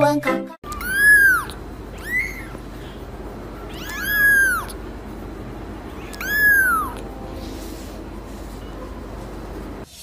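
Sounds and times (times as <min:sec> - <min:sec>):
kitten meowing: 0:00.7 - 0:02.6, 0:03.6 - 0:04.8, 0:05.9 - 0:07.1.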